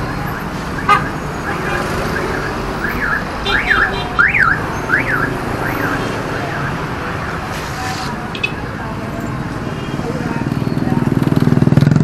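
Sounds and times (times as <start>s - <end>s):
electronic alarm whooping: 0.0s - 6.9s
motorbike and car traffic rumble: 0.0s - 12.0s.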